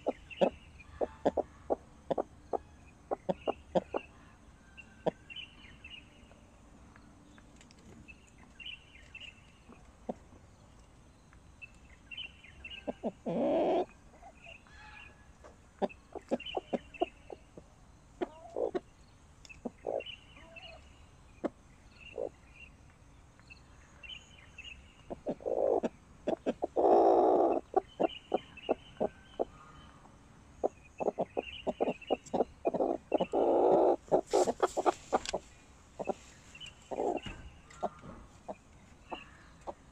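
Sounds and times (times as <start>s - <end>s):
hen clucking: 0.0s - 4.4s, 5.0s - 5.2s, 12.7s - 15.2s, 15.8s - 18.9s, 19.6s - 20.8s, 21.4s - 22.4s, 25.1s - 39.9s.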